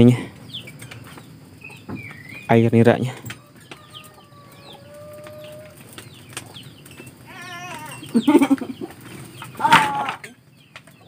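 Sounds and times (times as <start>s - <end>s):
birds chirping: 0.0s - 11.0s
chicken calling: 3.3s - 10.3s.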